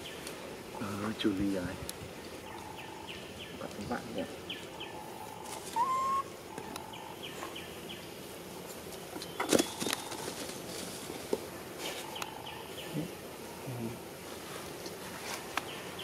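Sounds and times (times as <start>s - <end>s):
rising whistle: 5.8s - 6.3s.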